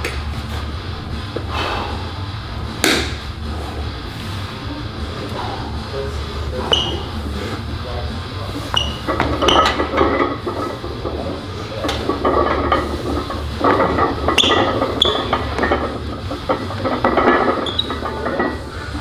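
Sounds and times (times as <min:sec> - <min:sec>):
steady low hum: 0:00.0 - 0:19.0
man breathing hard and straining: 0:01.4 - 0:02.5, 0:03.4 - 0:06.5, 0:18.6 - 0:19.0
barbell plates clinking and rattling: 0:08.7 - 0:19.0.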